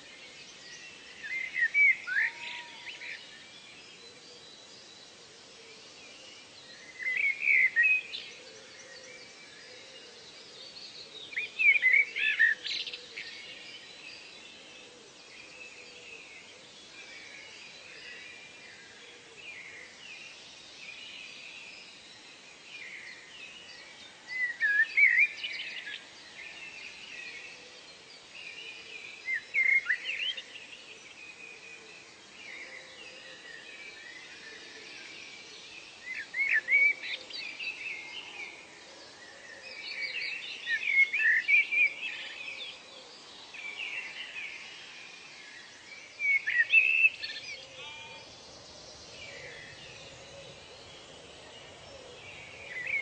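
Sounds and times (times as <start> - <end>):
outdoor ambience hiss: 0.0 - 53.0
birds chirping: 31.9 - 53.0.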